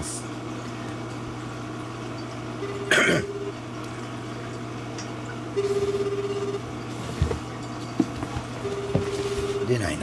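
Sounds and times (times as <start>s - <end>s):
steady low hum: 0.0s - 10.0s
telephone ringback tone: 2.6s - 3.6s, 5.6s - 6.6s, 8.6s - 9.9s.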